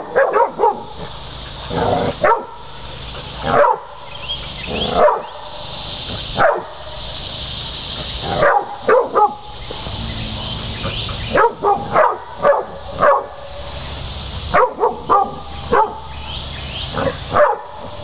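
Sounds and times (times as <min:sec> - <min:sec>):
dogs barking: 0:00.0 - 0:02.7, 0:03.3 - 0:04.0, 0:04.7 - 0:05.6, 0:06.3 - 0:06.9, 0:08.2 - 0:13.7, 0:14.5 - 0:16.1, 0:16.9 - 0:18.0.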